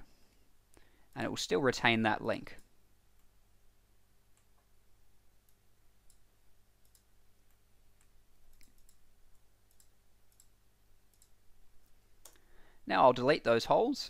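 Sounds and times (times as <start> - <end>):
computer mouse clicks: 5.4 - 12.4.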